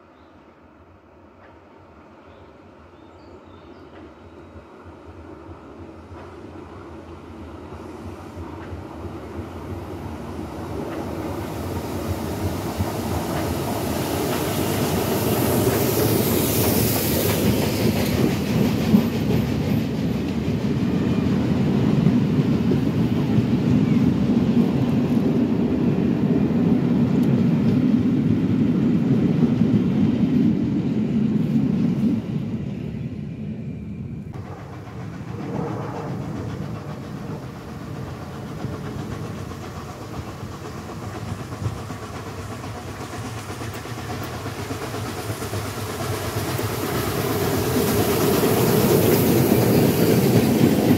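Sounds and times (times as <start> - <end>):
steam train passing: 0.0 - 50.9
hiss of steam: 7.6 - 19.3, 35.6 - 50.9.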